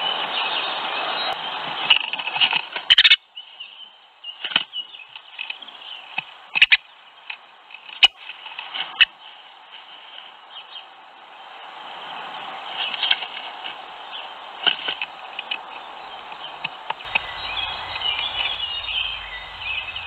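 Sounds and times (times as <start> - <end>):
faint hiss: 0.0 - 20.0.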